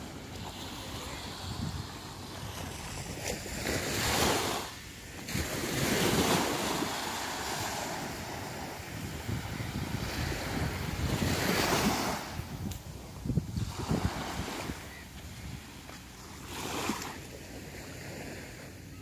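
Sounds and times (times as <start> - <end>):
small waves breaking on sand: 0.0 - 19.0
wind buffeting microphone: 5.3 - 15.8.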